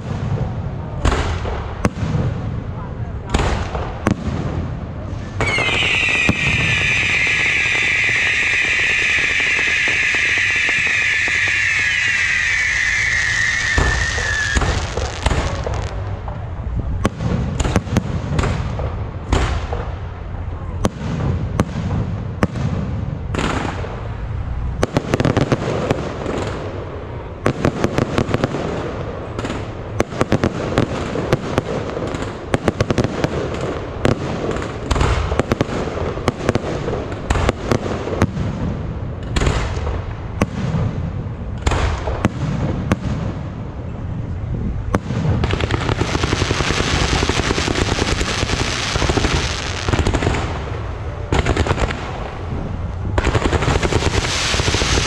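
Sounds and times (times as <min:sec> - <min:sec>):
firework crackle: 0:03.3 - 0:20.0, 0:20.8 - 0:43.6, 0:44.8 - 0:55.0
firework shells bursting: 0:05.4 - 0:16.1.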